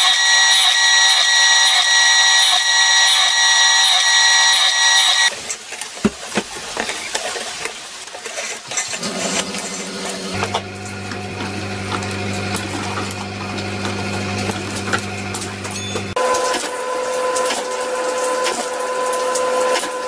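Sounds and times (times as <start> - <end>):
drill press motor whining: 0.0 - 5.3, 10.3 - 20.0.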